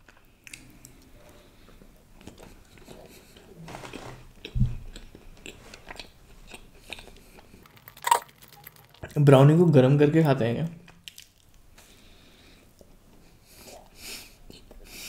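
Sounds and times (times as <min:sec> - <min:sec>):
biting and chewing brownie: 0:04.3 - 0:09.2.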